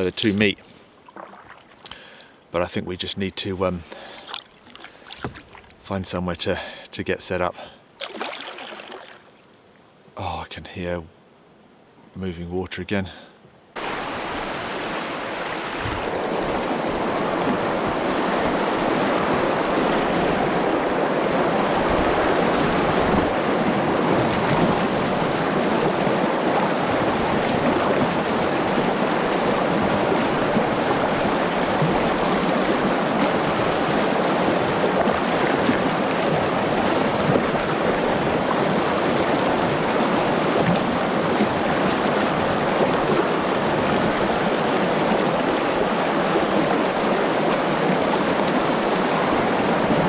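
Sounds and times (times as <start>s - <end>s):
river rapids rushing: 13.8s - 50.0s.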